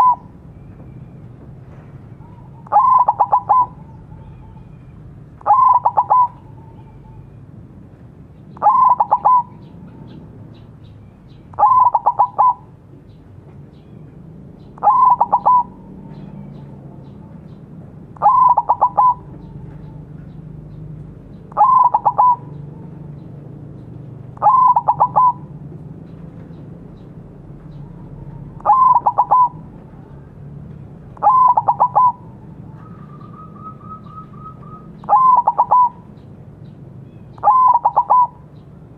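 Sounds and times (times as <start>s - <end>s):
dove cooing: 0.0s - 0.4s, 2.1s - 4.8s, 5.4s - 7.3s, 8.5s - 10.2s, 11.5s - 12.8s, 14.6s - 17.6s, 18.2s - 20.8s, 21.5s - 23.2s, 24.3s - 25.8s, 27.0s - 30.4s, 31.1s - 36.2s, 37.4s - 38.6s
bird trill: 0.0s - 1.4s, 2.0s - 7.4s, 8.4s - 17.6s, 18.2s - 23.3s, 24.4s - 25.5s, 26.5s - 30.2s, 31.2s - 38.7s.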